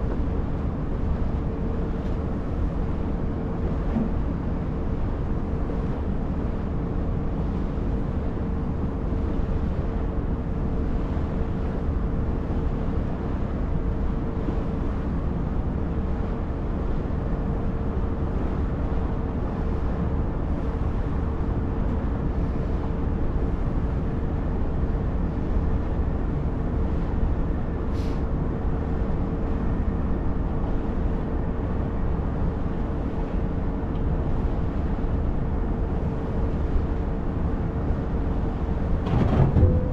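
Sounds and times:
ferry engine droning: 0:31.8 - 0:39.9.

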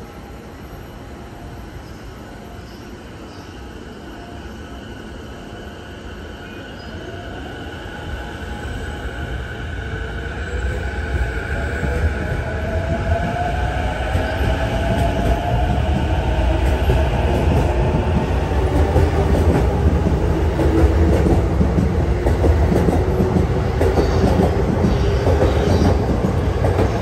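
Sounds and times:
train wheels rumbling on rails: 0:08.6 - 0:27.0.

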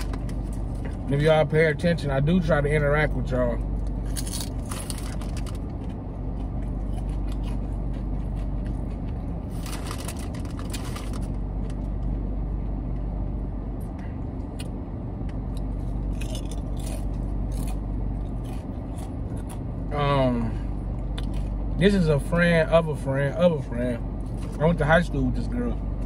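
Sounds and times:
low rumble inside a car: 0:00.0 - 0:26.0
person crunching chips: 0:04.0 - 0:11.7, 0:15.6 - 0:19.7
chip bag crinkling: 0:04.1 - 0:05.7, 0:09.5 - 0:11.3.

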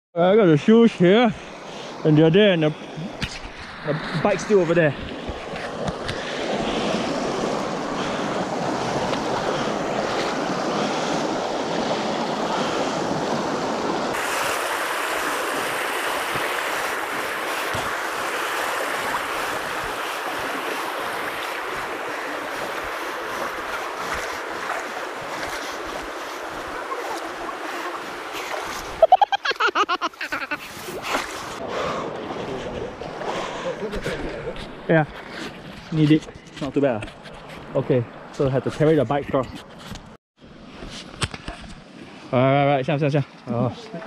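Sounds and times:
creek water rushing over rocks: 0:00.6 - 0:34.2.

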